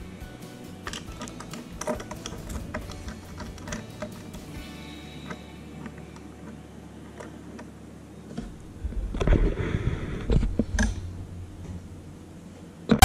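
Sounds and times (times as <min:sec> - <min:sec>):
faint steady hum: 0:00.0 - 0:13.0
low rumble: 0:08.4 - 0:12.6.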